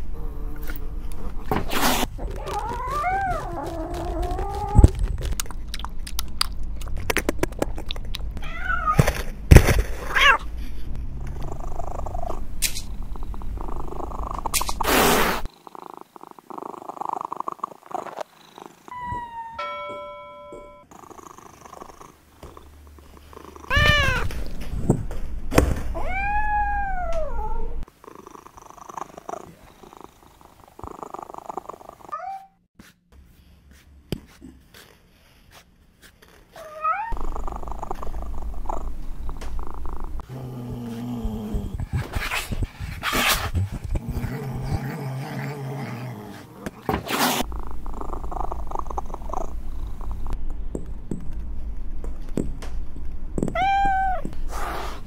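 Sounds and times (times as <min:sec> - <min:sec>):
cat purring: 0:02.0 - 0:05.4, 0:11.2 - 0:14.7, 0:15.4 - 0:18.9, 0:20.9 - 0:23.7, 0:27.6 - 0:32.1, 0:37.0 - 0:46.5, 0:47.4 - 0:50.4
cat meowing: 0:02.2 - 0:05.0, 0:23.7 - 0:24.3, 0:53.5 - 0:54.3.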